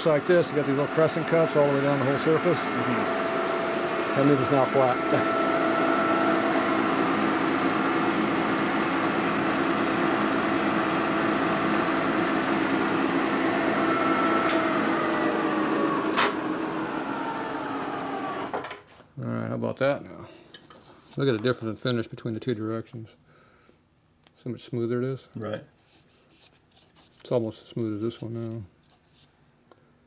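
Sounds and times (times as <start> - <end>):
milling machine cutting metal: 0.0 - 18.5.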